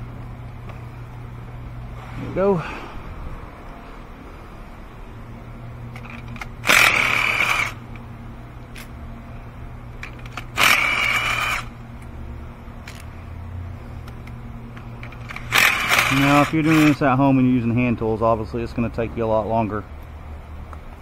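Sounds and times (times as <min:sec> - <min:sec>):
cordless power gun spinning: 0:06.0 - 0:08.0, 0:10.0 - 0:11.8, 0:15.0 - 0:17.0.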